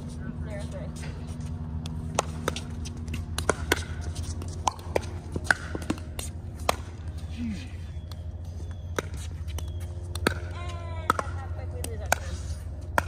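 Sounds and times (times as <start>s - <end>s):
steady low hum: 0.0s - 13.0s
paddles popping against ball: 1.8s - 6.9s, 9.0s - 12.3s
ball bouncing on hard court: 1.8s - 7.0s, 8.9s - 13.0s.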